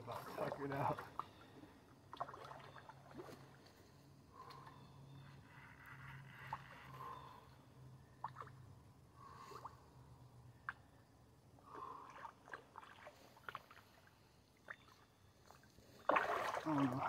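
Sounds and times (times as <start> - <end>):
low steady hum: 0.0 - 17.0
fish splashing in water: 16.0 - 17.0.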